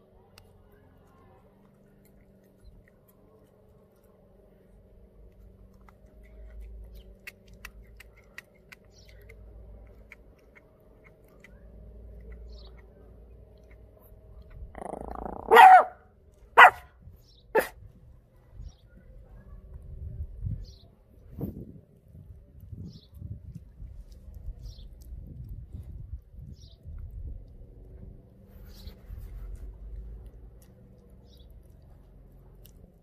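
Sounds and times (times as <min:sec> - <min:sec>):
dog chewing with crunching: 0:00.4 - 0:15.8, 0:22.6 - 0:33.0
dog barking: 0:15.1 - 0:16.0, 0:16.6 - 0:16.9, 0:17.5 - 0:17.8.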